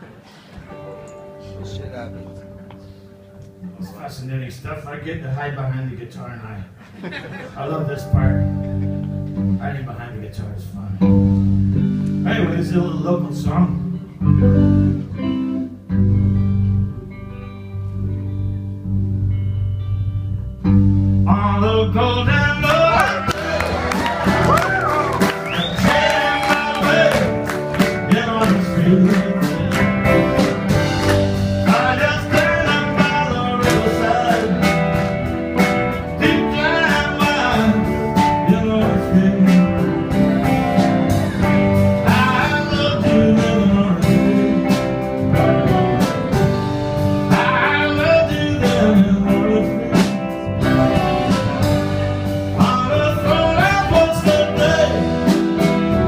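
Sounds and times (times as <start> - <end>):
live rock band playing: 0.0 - 56.0
man singing: 12.2 - 14.2, 21.2 - 23.9, 25.5 - 30.5, 31.6 - 35.2, 36.1 - 40.9, 41.8 - 45.7, 47.0 - 56.0.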